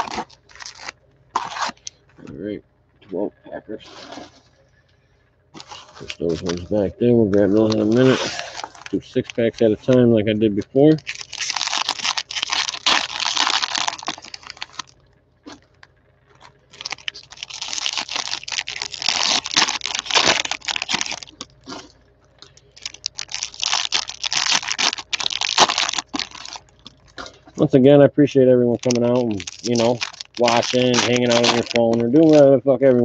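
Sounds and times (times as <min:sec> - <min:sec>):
cellophane wrappers tearing and crinkling: 0:00.0 - 0:01.8, 0:05.6 - 0:10.0, 0:11.0 - 0:14.9, 0:16.7 - 0:27.4, 0:28.8 - 0:32.5.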